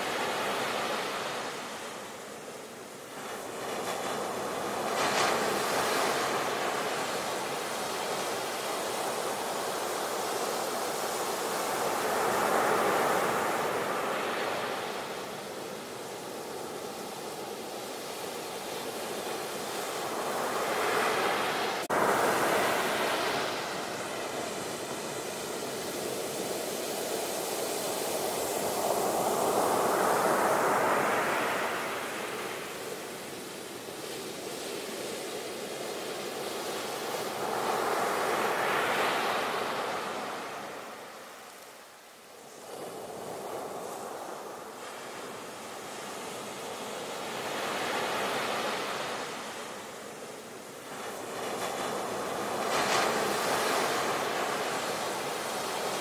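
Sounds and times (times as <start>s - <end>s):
sea waves breaking: 3.1s - 41.4s.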